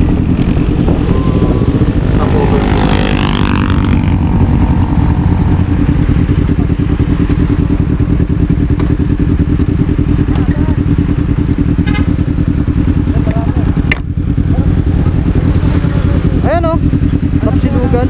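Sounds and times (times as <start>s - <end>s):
motorcycle engine running: 0.0s - 18.0s.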